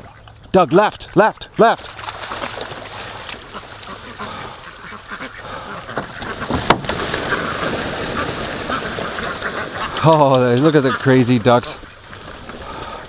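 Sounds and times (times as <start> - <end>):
ducks splashing in water: 1.6 - 13.0
ducks quacking: 2.9 - 13.0.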